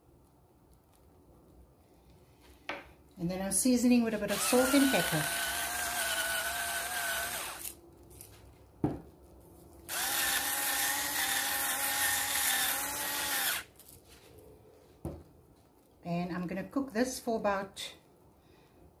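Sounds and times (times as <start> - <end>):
electric spice grinder running: 4.3 - 7.8, 9.9 - 13.7.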